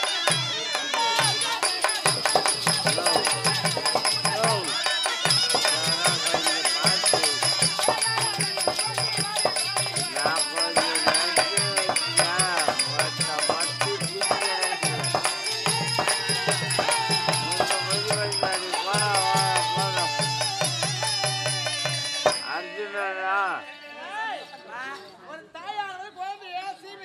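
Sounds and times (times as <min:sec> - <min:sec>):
hand drum rhythm: 0:00.0 - 0:22.5
bells jingling: 0:00.0 - 0:23.7.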